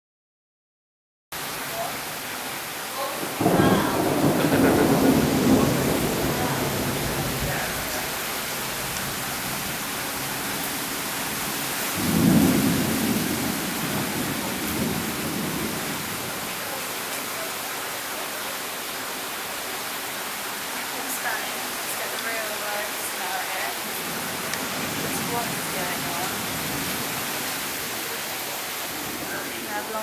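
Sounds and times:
heavy rain pouring: 0:01.4 - 0:30.0
thunder rolling: 0:03.2 - 0:16.7, 0:24.0 - 0:28.0.

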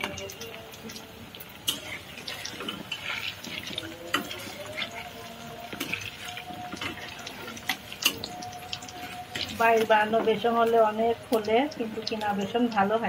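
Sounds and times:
food deep-frying in hot oil: 0:00.0 - 0:13.0.

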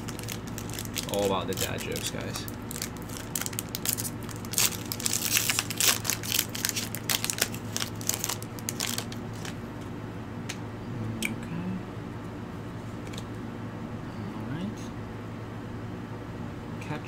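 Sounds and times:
cards rustling: 0:00.0 - 0:09.6
foil wrapper crinkling: 0:00.0 - 0:09.6.

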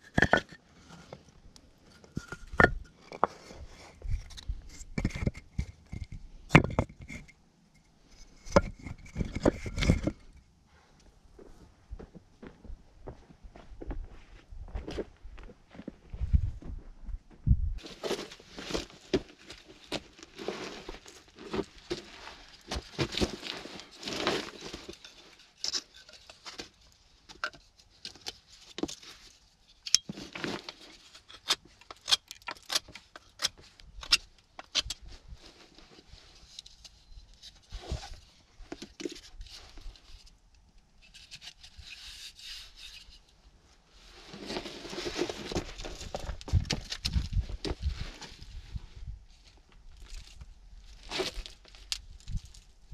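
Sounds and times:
knocks and scrapes of sticks and stone: 0:00.0 - 0:10.4, 0:17.8 - 0:52.9
rustling of sticks and grass: 0:17.8 - 0:52.9.

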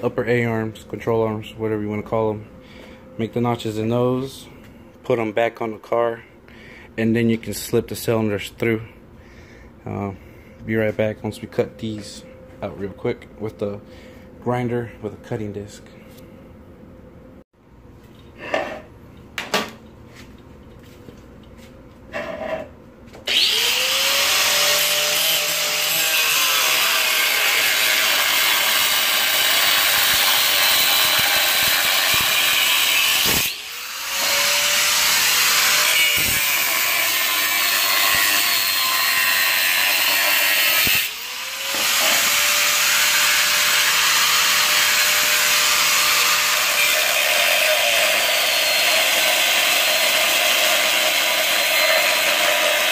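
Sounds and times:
angle grinder cutting steel: 0:23.3 - 0:52.9.

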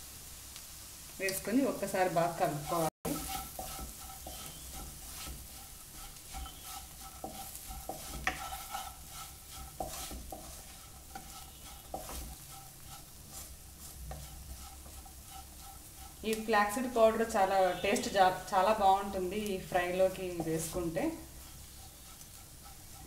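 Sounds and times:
beans sizzling in oil: 0:00.0 - 0:23.0
wooden spatula scraping a wok: 0:01.2 - 0:23.0.

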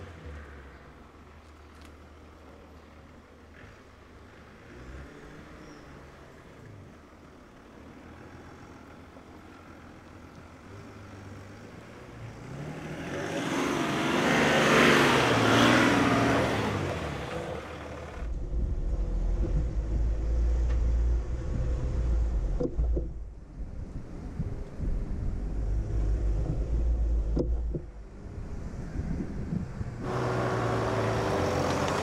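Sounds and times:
low engine rumble: 0:16.1 - 0:32.0.

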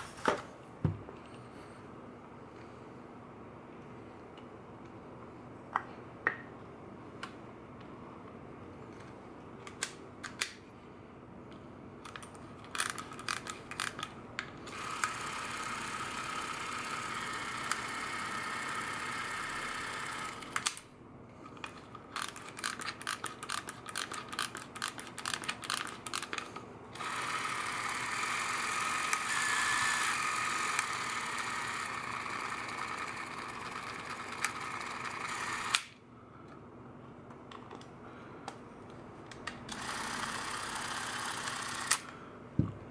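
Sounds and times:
clockwork spring winding clicks: 0:12.7 - 0:14.1, 0:22.2 - 0:26.4
cine camera motor whirring: 0:14.7 - 0:20.8, 0:22.2 - 0:35.9, 0:39.7 - 0:42.1.

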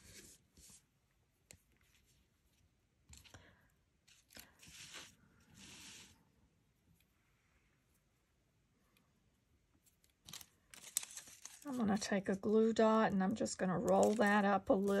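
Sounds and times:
paper cards rustling: 0:04.0 - 0:06.1, 0:10.0 - 0:12.1, 0:13.8 - 0:15.0.

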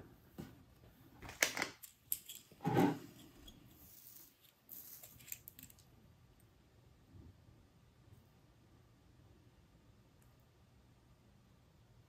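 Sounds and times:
wires clicking and rubbing: 0:01.2 - 0:06.0.

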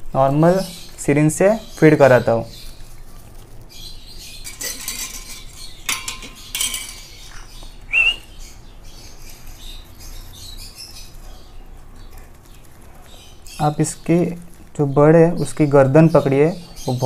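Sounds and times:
syringe clinking against cup: 0:04.5 - 0:07.3.

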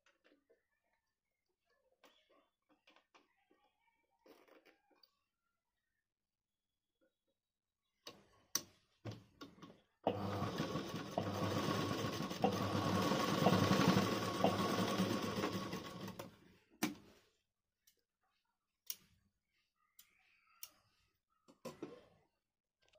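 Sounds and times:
sewing machine stitching: 0:10.1 - 0:16.3.

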